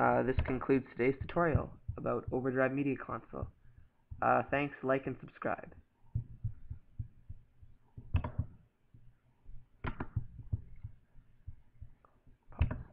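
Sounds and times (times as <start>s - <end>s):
computer mouse clicking: 0.2s - 2.0s, 8.0s - 8.6s, 9.8s - 12.9s.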